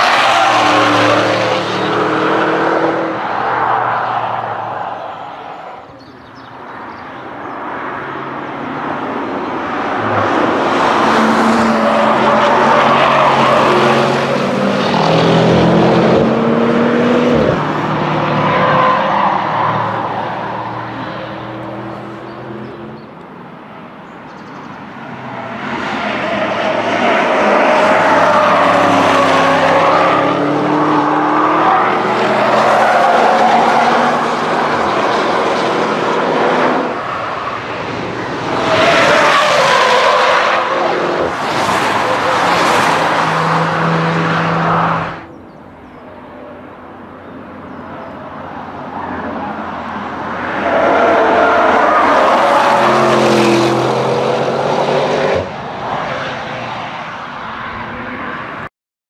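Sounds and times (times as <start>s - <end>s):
car passing at full throttle: 0.0s - 4.8s, 7.7s - 23.0s, 25.0s - 45.3s, 49.0s - 58.6s.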